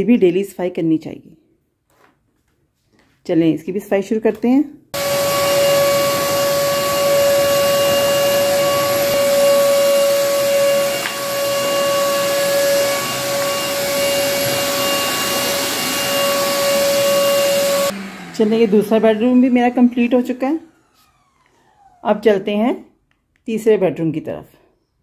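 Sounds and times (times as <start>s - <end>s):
vacuum cleaner running: 5.0s - 22.7s.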